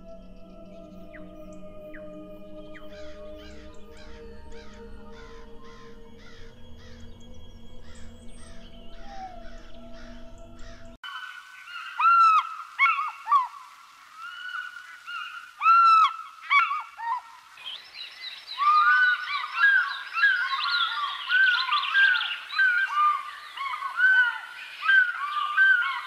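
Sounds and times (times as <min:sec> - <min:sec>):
steady droning background: 0:00.0 - 0:11.0.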